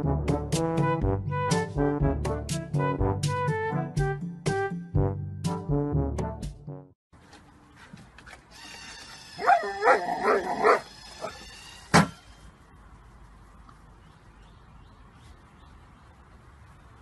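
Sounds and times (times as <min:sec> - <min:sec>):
dog yipping and barking: 0:09.4 - 0:11.4.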